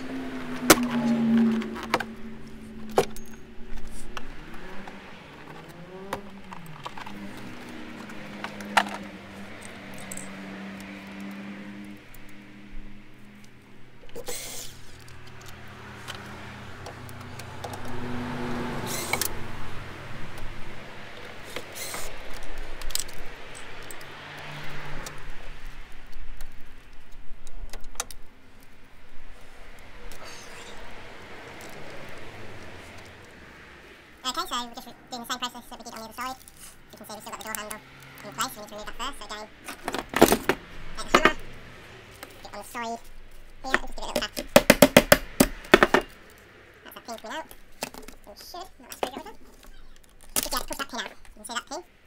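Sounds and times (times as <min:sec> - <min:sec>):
plastic clicks and rattles: 0:26.1 - 0:28.3.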